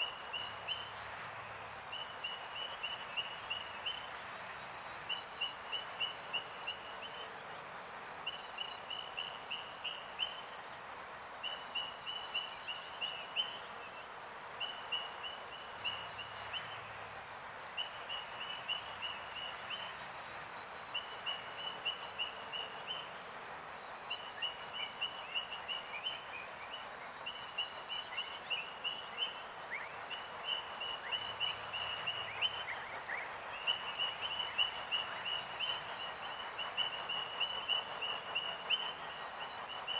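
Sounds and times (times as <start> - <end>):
faint hiss: 0.0 - 39.9
insect chirp series: 0.0 - 39.9
high pulsing insect trill: 11.4 - 39.9.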